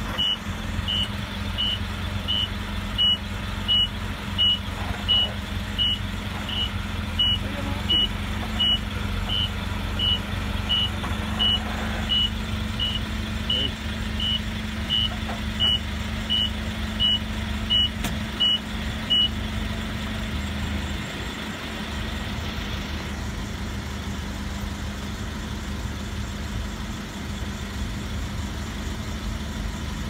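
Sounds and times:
forklift engine running: 0.0 - 30.0
reversing alarm beeping: 0.1 - 19.4.

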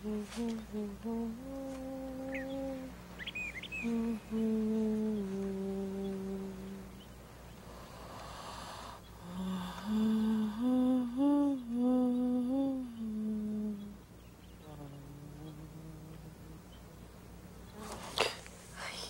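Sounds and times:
woman humming: 0.0 - 3.0, 3.7 - 7.1, 9.2 - 14.0, 14.6 - 17.1, 17.7 - 19.0.

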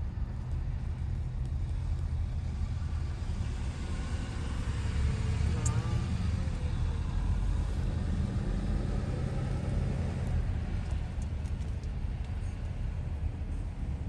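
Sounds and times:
faint ticks: 10.8 - 12.8.

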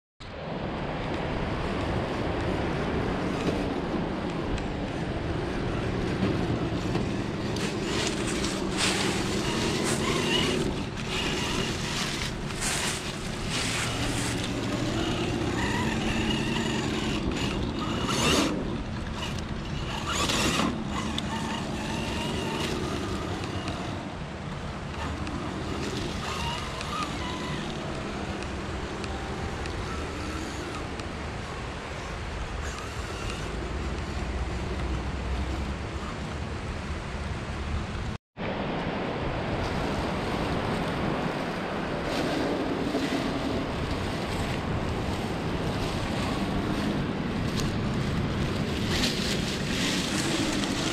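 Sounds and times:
rc car motor whining: 6.6 - 24.0, 24.9 - 36.1, 47.5 - 50.9.

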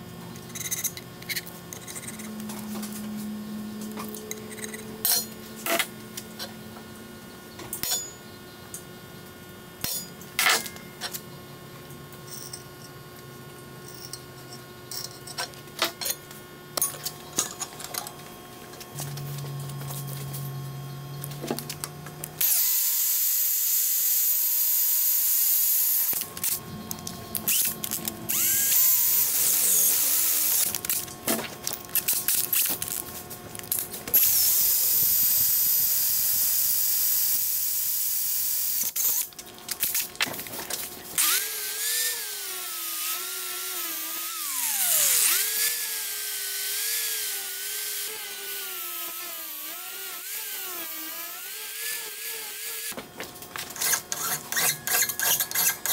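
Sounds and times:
drill boring through steel: 22.4 - 26.2, 27.4 - 30.7, 34.2 - 39.3, 41.2 - 53.0
angle grinder grinding steel: 27.2 - 31.0, 41.2 - 53.0, 53.8 - 55.9.

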